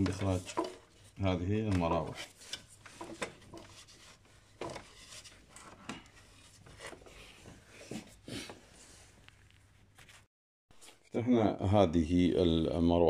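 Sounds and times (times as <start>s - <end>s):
parts clicking and rubbing: 0.0s - 8.2s.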